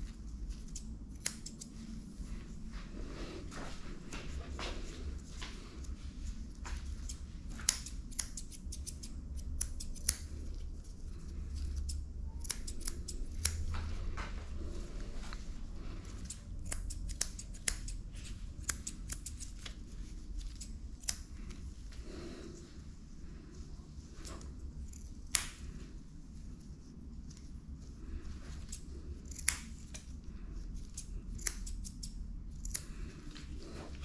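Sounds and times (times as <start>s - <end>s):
scissors snipping dog fur: 0.0s - 1.9s, 6.6s - 14.1s, 16.0s - 21.6s, 24.2s - 25.9s, 28.4s - 34.0s
low steady hum: 0.0s - 34.0s.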